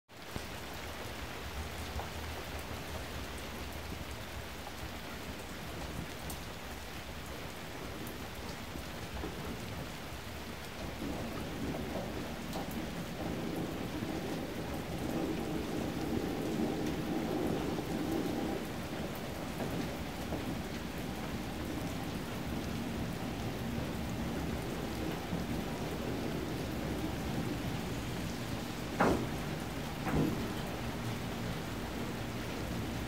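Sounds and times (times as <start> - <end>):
steady rain: 0.1 - 33.0
electric train approaching: 10.8 - 33.0.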